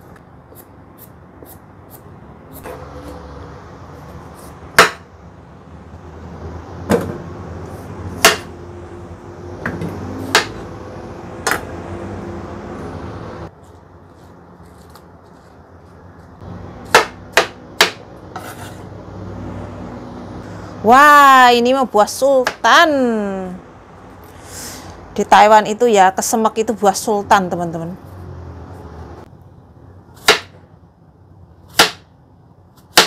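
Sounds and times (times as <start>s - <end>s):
knife chopping on cutting board: 4.4s - 5.1s, 8.2s - 8.5s, 9.7s - 10.6s, 16.9s - 18.8s, 30.2s - 30.5s, 31.7s - 32.0s.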